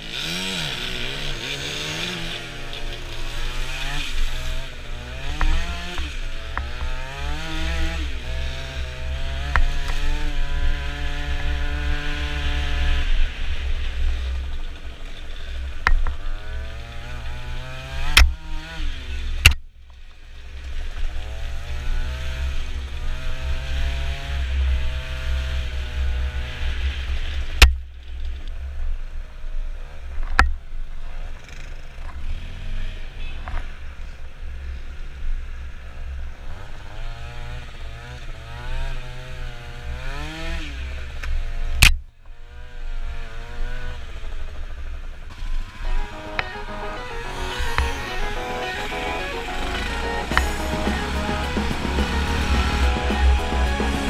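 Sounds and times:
scooter engine revving: 0.0 - 14.4, 45.3 - 54.0.

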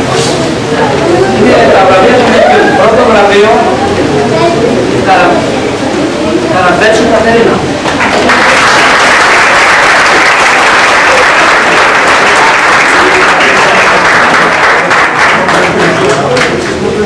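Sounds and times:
crowd applauding: 7.8 - 17.0.

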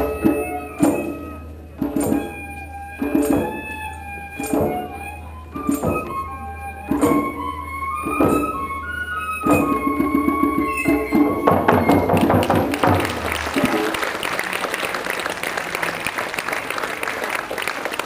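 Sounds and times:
tin whistle: 0.0 - 14.2
crowd applauding: 11.8 - 18.0.

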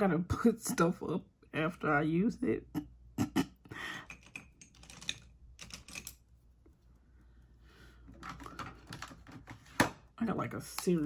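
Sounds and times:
plastic makeup cases clicking: 8.1 - 10.0.

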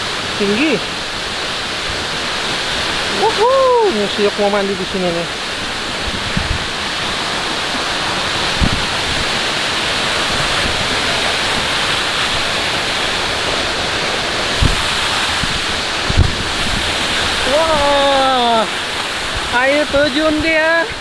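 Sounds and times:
waterfall rushing: 0.0 - 21.0
short low thumps: 14.6 - 17.0.

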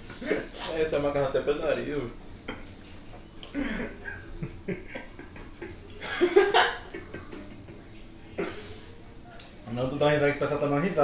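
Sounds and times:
men laughing: 3.6 - 7.4.

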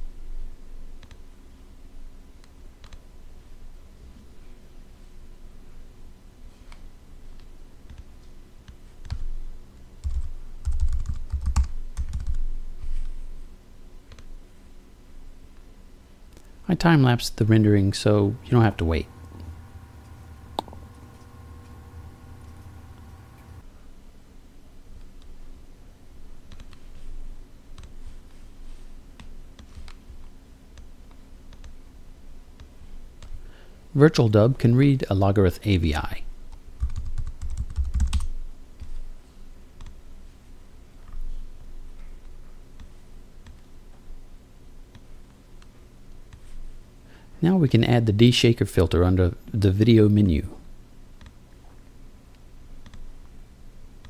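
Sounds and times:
faint low hum: 0.0 - 54.0
computer mouse clicking: 1.0 - 1.2, 2.4 - 3.0, 7.4 - 9.3, 14.1 - 14.3, 26.5 - 26.8, 27.8 - 28.0, 29.2 - 30.2, 30.8 - 31.8, 39.8 - 40.0, 42.2 - 43.7, 52.8 - 53.1
typing on keyboard: 10.0 - 12.5, 36.8 - 38.9.

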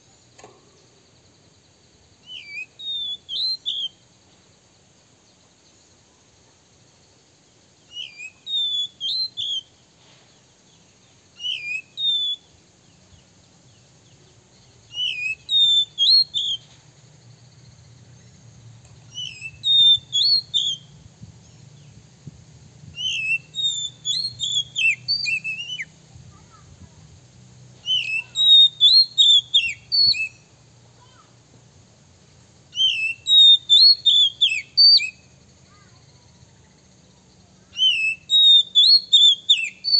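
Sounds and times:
bird singing whistled phrases: 2.2 - 4.0, 7.9 - 9.8, 11.3 - 12.6, 14.9 - 16.7, 19.1 - 21.0, 23.0 - 25.9, 27.8 - 30.5, 32.7 - 35.3, 37.6 - 39.9.

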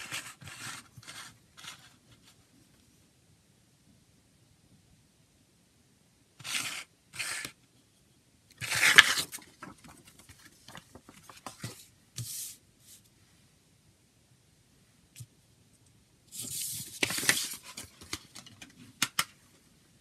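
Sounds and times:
paper rustling and crinkling: 8.6 - 12.6, 16.4 - 19.3.

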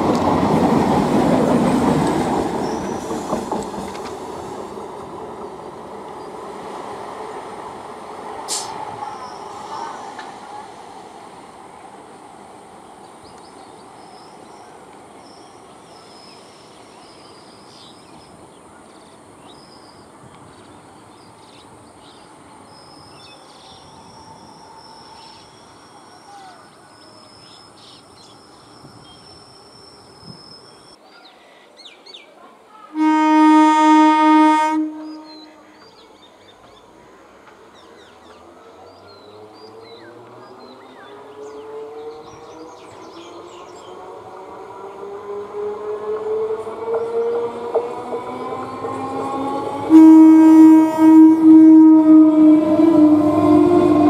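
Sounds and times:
train horn blast: 32.9 - 35.6, 49.8 - 54.0
birds chirping: 34.9 - 49.9.

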